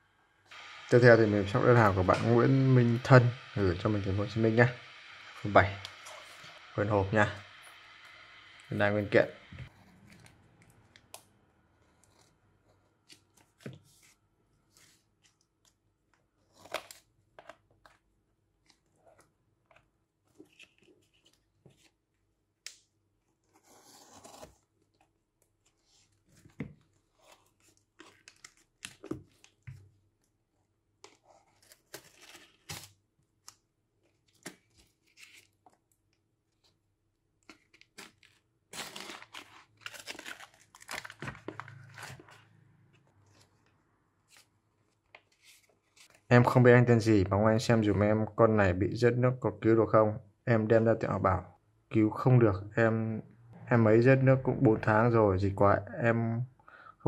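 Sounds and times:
tape and packaging ripping: 0:37.5 - 0:42.5.

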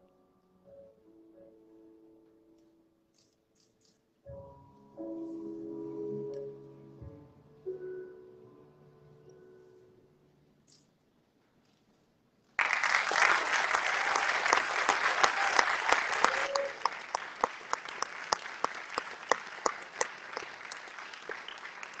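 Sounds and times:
audience applauding: 0:12.6 - 0:22.0.

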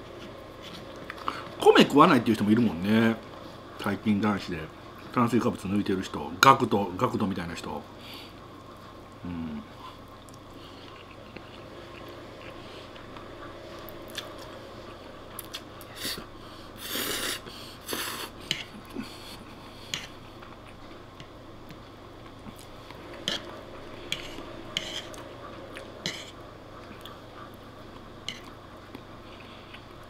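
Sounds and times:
fork scraping wooden plate: 0:19.9 - 0:20.2, 0:23.2 - 0:25.2, 0:26.0 - 0:26.4.

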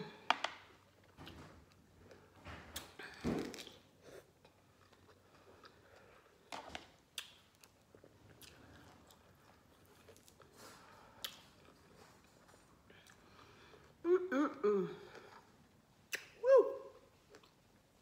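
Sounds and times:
person chewing lemon: 0:00.9 - 0:06.5, 0:07.1 - 0:14.0, 0:17.0 - 0:17.8.

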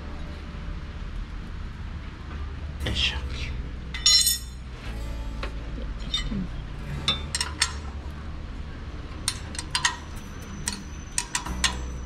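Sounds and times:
steady low hum: 0:00.0 - 0:12.0
metal tools clinking: 0:04.0 - 0:04.6, 0:06.0 - 0:06.4, 0:07.0 - 0:07.9, 0:09.2 - 0:12.0.

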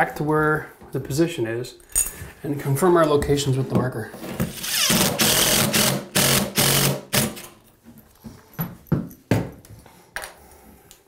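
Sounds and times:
impact driver running: 0:04.5 - 0:07.4.

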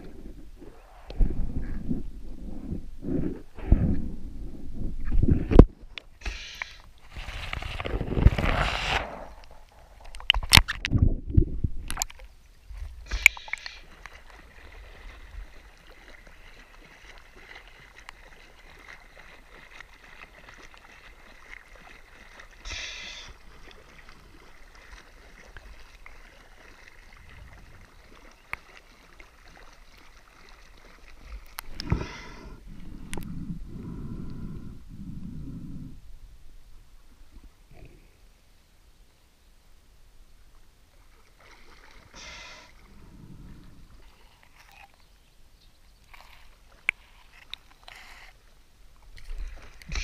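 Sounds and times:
muffled underwater rumbles: 0:00.0 - 0:06.0, 0:10.2 - 0:12.1, 0:29.4 - 0:38.2
water splashing and lapping: 0:00.0 - 0:38.4, 0:40.4 - 0:50.0.

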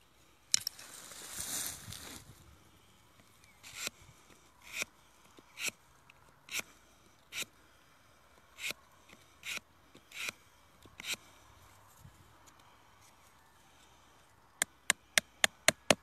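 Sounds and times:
knife scraping wood: 0:03.6 - 0:05.8, 0:06.4 - 0:07.5, 0:08.6 - 0:10.4, 0:11.0 - 0:11.3.

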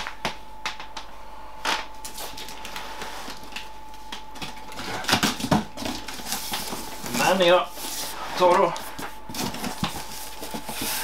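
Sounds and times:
cardboard box and tape handling: 0:02.0 - 0:11.0.

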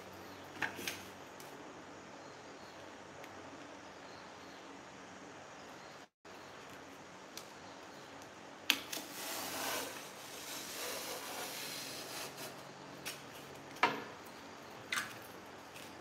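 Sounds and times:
blade scraping through cardboard: 0:09.0 - 0:12.6.

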